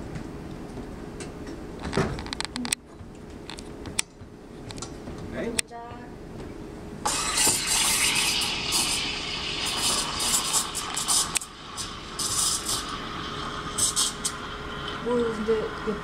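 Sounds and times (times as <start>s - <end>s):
steam wand hissing: 7.1s - 16.0s.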